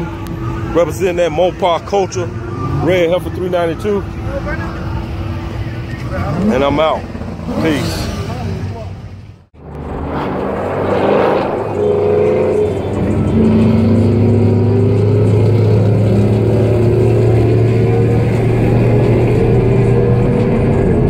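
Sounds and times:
car engine droning: 0.0s - 21.0s
road noise in car cabin: 8.6s - 21.0s.

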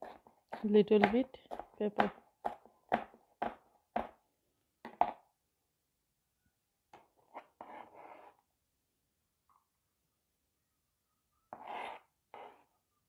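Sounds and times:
knife chopping on plastic board: 0.0s - 4.2s, 4.9s - 5.2s.

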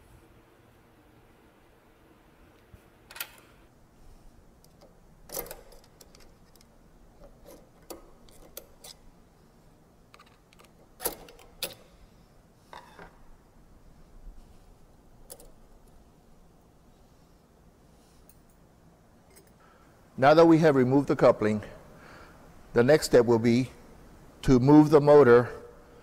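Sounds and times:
metallic clicks and clinks: 19.2s - 19.6s.

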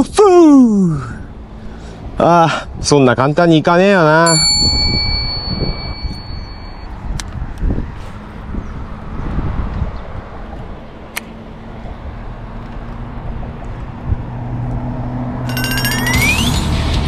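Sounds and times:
wind buffeting microphone: 4.4s - 11.1s, 13.0s - 14.8s.

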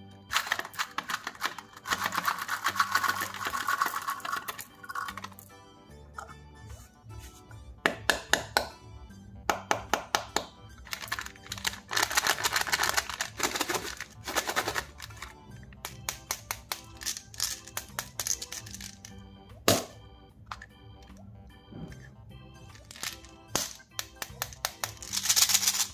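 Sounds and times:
soft background music: 0.0s - 25.9s
plastic containers clicking: 0.3s - 5.4s, 10.4s - 19.1s
foil wrapper crinkling: 10.9s - 15.2s.

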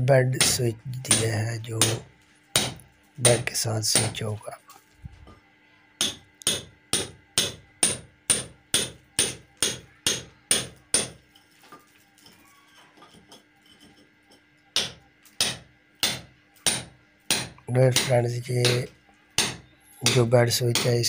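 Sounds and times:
hammer striking chisel on concrete: 0.4s - 2.0s, 2.6s - 3.4s, 6.0s - 11.2s, 14.8s - 21.0s.

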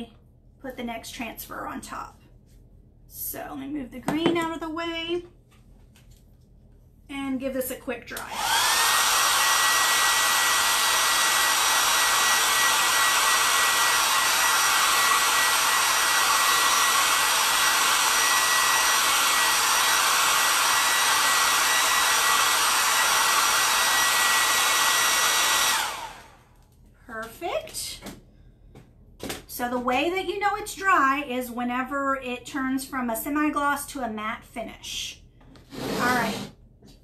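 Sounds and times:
hair dryer running: 8.1s - 26.7s, 35.7s - 36.5s.

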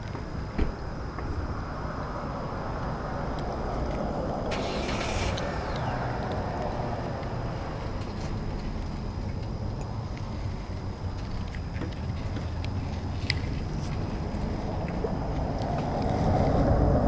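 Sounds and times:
car passing by: 1.7s - 9.1s, 14.3s - 17.0s.

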